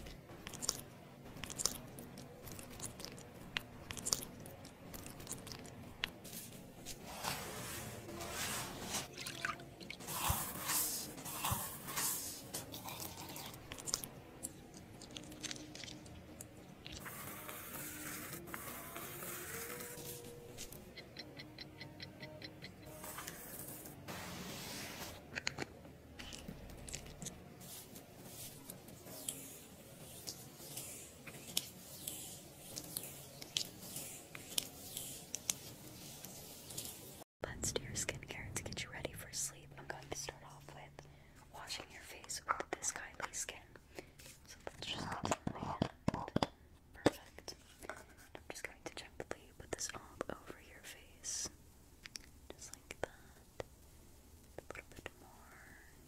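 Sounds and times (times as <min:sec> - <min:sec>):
paste squishing in a bowl: 0:00.0 - 0:07.0, 0:08.9 - 0:17.1
fingertips massaging cream on skin: 0:10.0 - 0:23.9.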